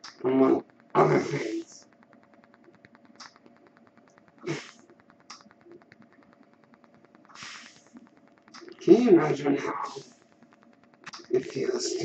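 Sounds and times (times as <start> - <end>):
faint steady hum: 0.0 - 12.0
fast faint ticking: 0.0 - 12.0
ventilator breath puffs: 7.3 - 7.9.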